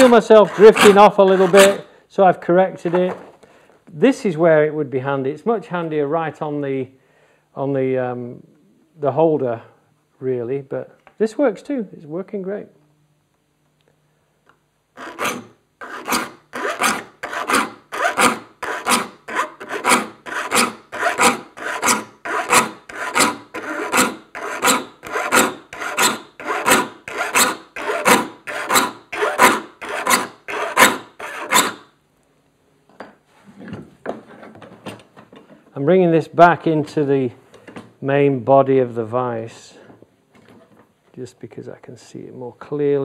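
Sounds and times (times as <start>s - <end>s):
file rasping on saw teeth: 0.0s - 1.8s, 15.0s - 31.8s.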